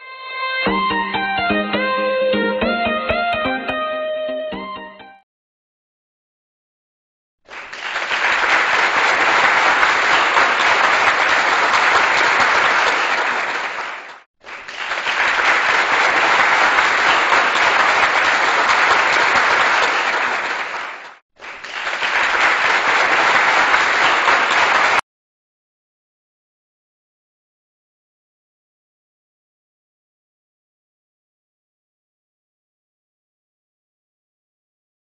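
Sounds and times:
applause: 0:07.5 - 0:25.0.

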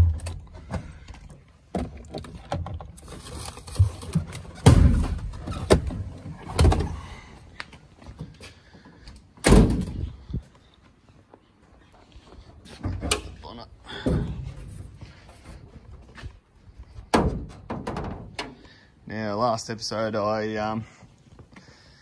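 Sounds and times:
knocks and thumps: 0:17.1 - 0:18.6.

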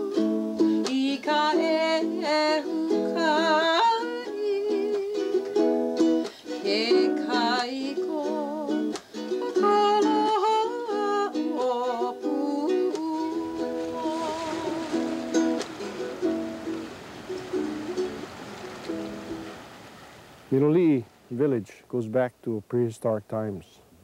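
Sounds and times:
woman singing with vibrato: 0:00.0 - 0:05.9, 0:06.5 - 0:15.7
ukulele: 0:00.0 - 0:21.8.

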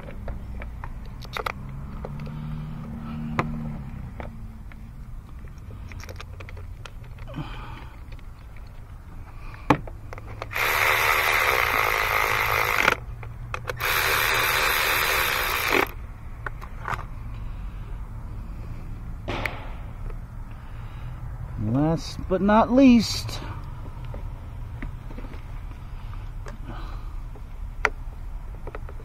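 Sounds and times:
electric ratchet running: 0:10.4 - 0:16.0.

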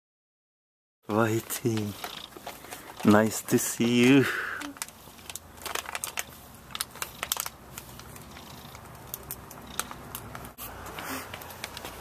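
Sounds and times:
cat purring: 0:01.4 - 0:02.6, 0:06.7 - 0:10.5
soft clicks and rustles: 0:04.6 - 0:12.0.

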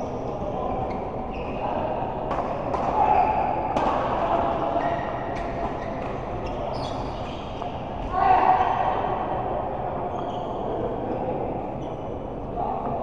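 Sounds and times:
murmur of sports hall: 0:00.0 - 0:13.0
shoes squeaking on court floor: 0:00.2 - 0:01.8, 0:04.8 - 0:08.0, 0:10.0 - 0:10.8, 0:11.8 - 0:12.2.

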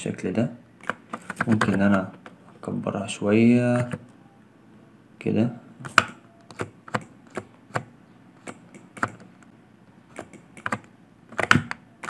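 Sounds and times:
keyboard and mouse clicking: 0:00.8 - 0:02.0, 0:05.8 - 0:09.5, 0:10.1 - 0:11.8.

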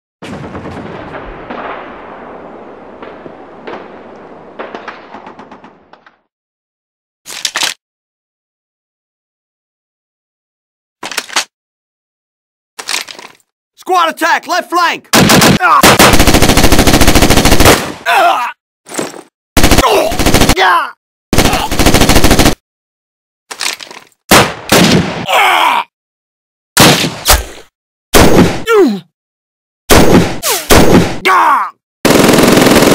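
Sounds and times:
sharp single gunshots: 0:15.1 - 0:16.3, 0:24.3 - 0:25.3, 0:26.8 - 0:28.7, 0:29.9 - 0:31.2
heavy gunfire din: 0:15.2 - 0:18.0, 0:21.3 - 0:22.6.

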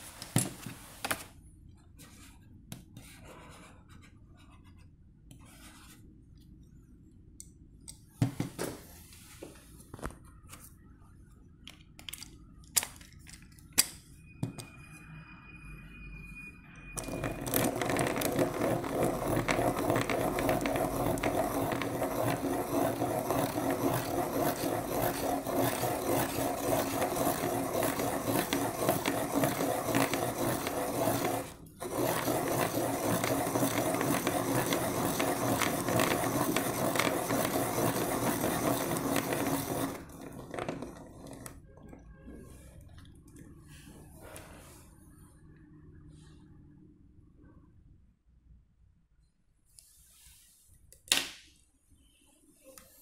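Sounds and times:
pencil sharpener grinding rasp: 0:17.0 - 0:41.5.

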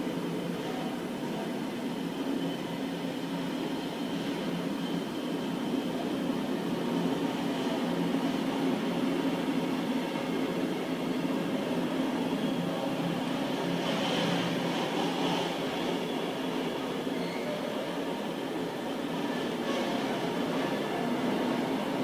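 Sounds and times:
freight train wheels rolling: 0:11.7 - 0:17.7.

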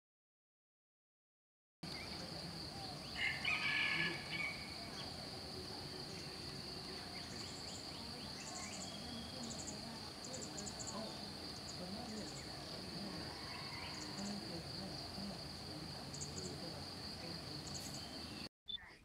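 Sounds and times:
loud bird call: 0:02.0 - 0:05.2.

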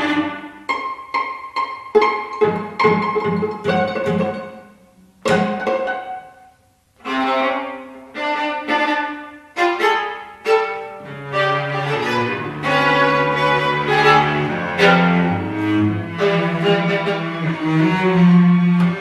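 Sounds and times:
low held cello line: 0:00.0 - 0:19.0
string trio playing chamber music: 0:00.0 - 0:19.0.

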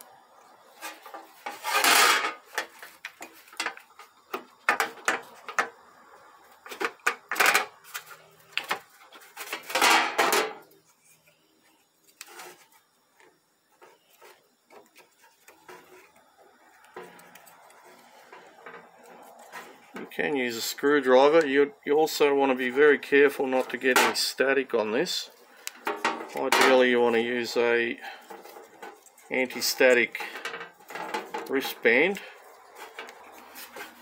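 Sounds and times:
loud scraping: 0:00.7 - 0:02.5.

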